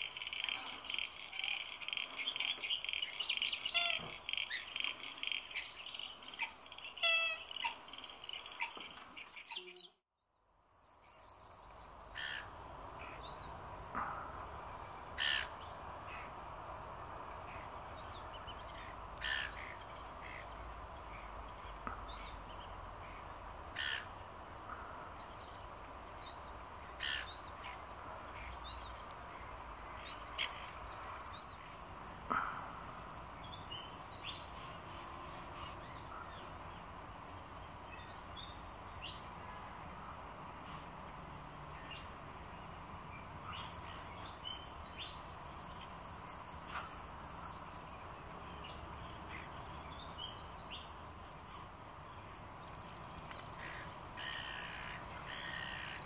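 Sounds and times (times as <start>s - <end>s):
pulsing rattle bird chorus: 12.0s - 13.2s, 15.2s - 16.2s, 19.2s - 20.4s, 23.8s - 24.1s, 27.0s - 27.8s, 53.5s - 56.0s.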